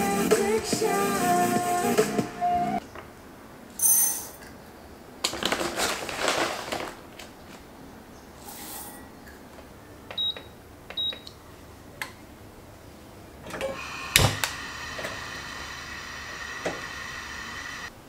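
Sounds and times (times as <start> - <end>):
gas burner clicking: 13.5 - 17.9
gas flame hissing: 13.5 - 17.9.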